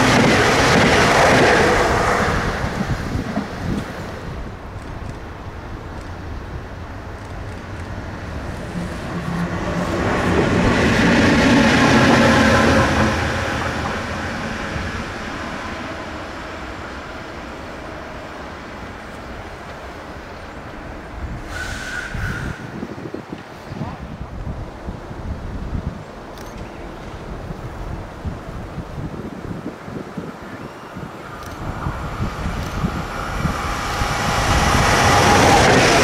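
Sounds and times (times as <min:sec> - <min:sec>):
train wheels rumbling on rails: 0:00.0 - 0:36.0
locomotive whine: 0:07.9 - 0:21.2, 0:30.4 - 0:36.0.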